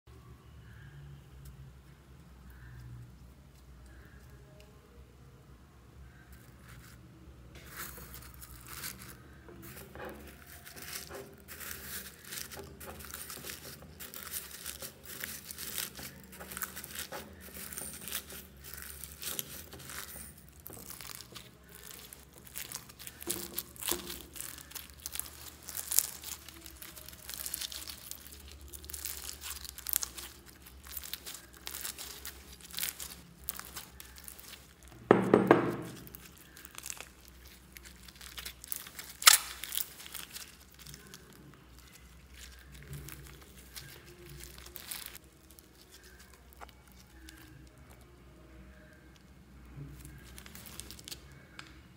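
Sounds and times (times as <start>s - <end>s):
slime with beads crackling: 6.1s - 51.7s
slime squish: 7.6s - 51.7s.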